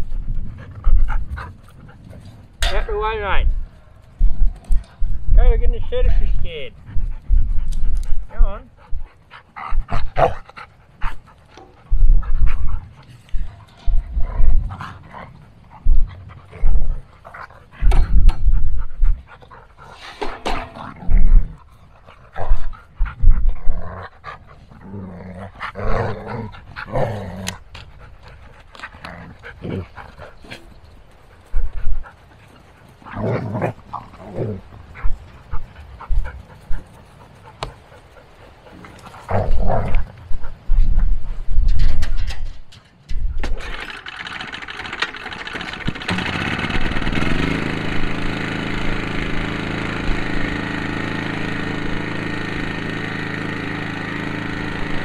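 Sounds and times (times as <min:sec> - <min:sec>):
dog panting: 0:00.0 - 0:02.5, 0:06.0 - 0:20.7, 0:21.5 - 0:24.9, 0:25.5 - 0:33.2, 0:33.9 - 0:41.5.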